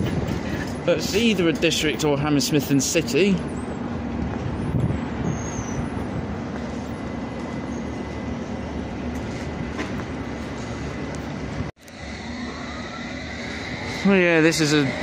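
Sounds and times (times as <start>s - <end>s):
train wheels rumbling on rails: 0.0s - 15.0s
faint high whine: 11.8s - 15.0s.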